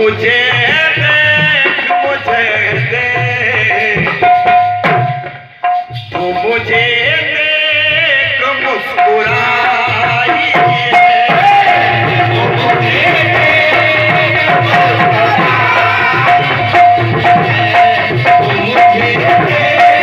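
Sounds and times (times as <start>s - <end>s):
hand-drum rhythm: 0.0s - 20.0s.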